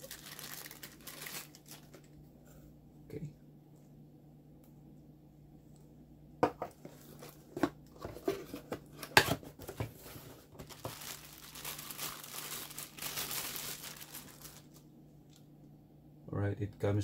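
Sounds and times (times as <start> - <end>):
plastic bag crinkling: 0.0 - 2.2, 10.0 - 14.8.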